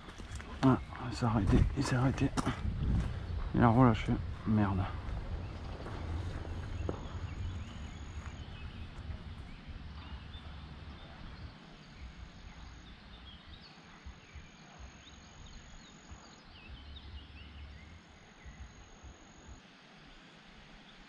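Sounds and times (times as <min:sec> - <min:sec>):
wind buffeting microphone: 0:00.0 - 0:14.9
small birds chirping: 0:00.0 - 0:19.6
steady outdoor hiss: 0:00.0 - 0:21.0.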